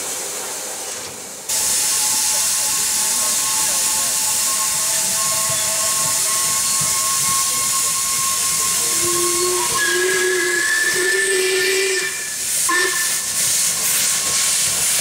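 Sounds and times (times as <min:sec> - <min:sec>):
steam hissing: 0:00.0 - 0:15.0
two-note steam whistle: 0:01.5 - 0:14.5
thin whistling tone: 0:02.1 - 0:13.3.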